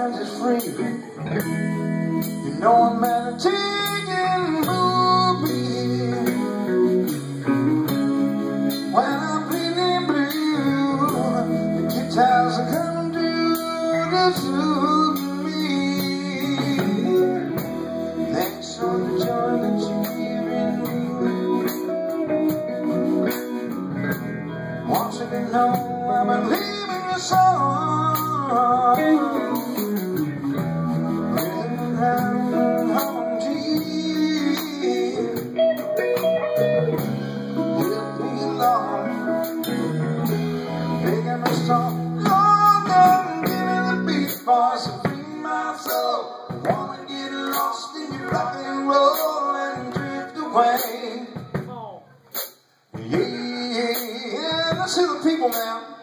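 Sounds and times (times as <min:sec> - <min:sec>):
drum kit: 0:00.0 - 0:56.0
electric guitar: 0:00.0 - 0:56.0.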